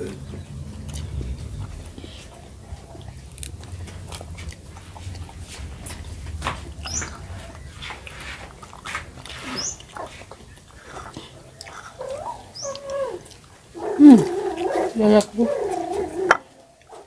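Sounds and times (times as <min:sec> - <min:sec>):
smacking clicks of eating: 0:00.0 - 0:17.0
pet animal crying: 0:11.6 - 0:16.5.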